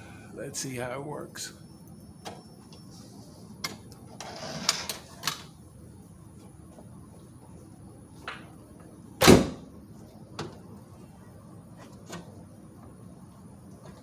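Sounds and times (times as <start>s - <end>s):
van door slamming: 9.2s - 9.7s.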